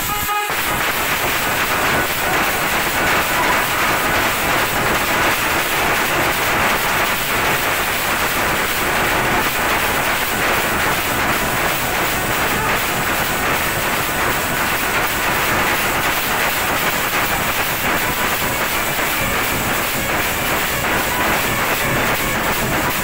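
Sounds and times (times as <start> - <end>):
saxophone playing: 0.0 - 0.5
drums beaten fast: 0.0 - 23.0.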